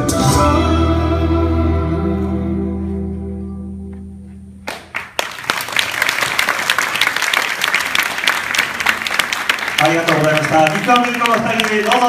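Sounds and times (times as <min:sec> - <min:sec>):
bachata music held chord: 0:00.0 - 0:04.5
sharp claps: 0:04.6 - 0:12.0
audience applauding: 0:04.7 - 0:12.0.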